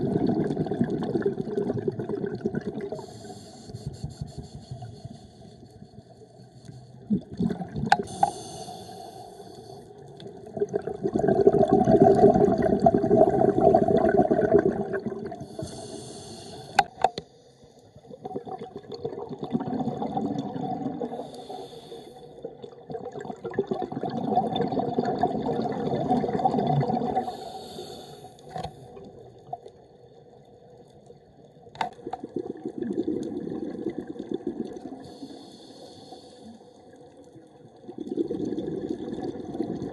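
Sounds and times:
bubbling exhalation: 0:00.0 - 0:03.0, 0:10.4 - 0:15.6, 0:18.2 - 0:21.2, 0:22.9 - 0:27.3, 0:37.9 - 0:39.9
regulator hissing inhalation: 0:03.0 - 0:05.4, 0:08.0 - 0:09.9, 0:15.4 - 0:17.0, 0:21.2 - 0:22.3, 0:27.2 - 0:28.5, 0:35.0 - 0:36.7.

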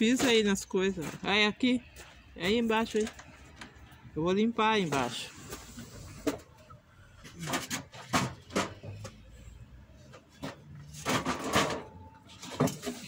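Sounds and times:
objects knocking and scraping: 0:00.0 - 0:02.2, 0:04.8 - 0:13.0.

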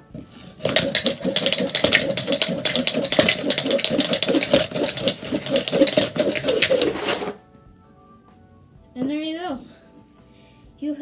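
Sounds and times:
dice rattling in a cup: 0:00.6 - 0:07.3.

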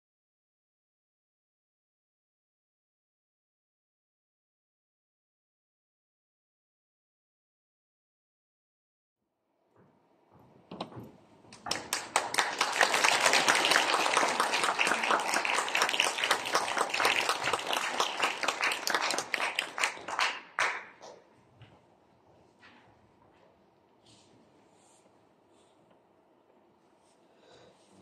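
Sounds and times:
audience applauding: 0:11.6 - 0:21.1.

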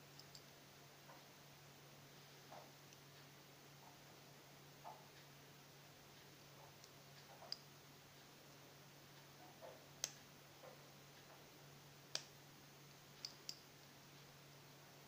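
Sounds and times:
faint steady hum: 0:00.0 - 0:15.0
light clicks of small tools: 0:00.1 - 0:00.5, 0:06.1 - 0:08.3, 0:09.2 - 0:11.4, 0:12.1 - 0:14.3.

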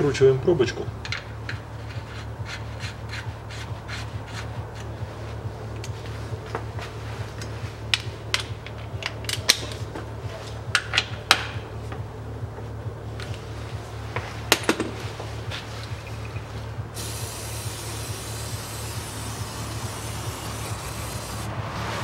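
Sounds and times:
steady low hum: 0:00.0 - 0:22.0
ratchet wrench clicking: 0:17.0 - 0:21.5.

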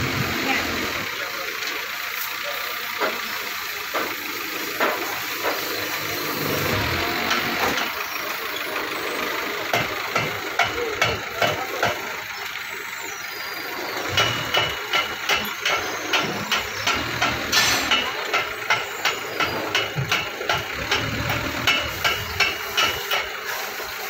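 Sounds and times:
forklift engine idling: 0:00.0 - 0:24.0
sharp metallic knocks: 0:09.7 - 0:12.1, 0:14.0 - 0:23.4.

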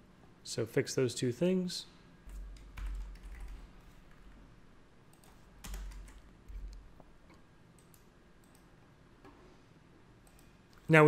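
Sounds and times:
faint keyboard typing: 0:02.2 - 0:04.4, 0:05.1 - 0:09.4, 0:10.2 - 0:10.9.

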